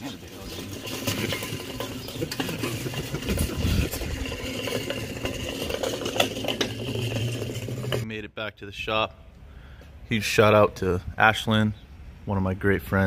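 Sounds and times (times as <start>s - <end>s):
small wheels rolling on concrete: 0.0s - 8.2s.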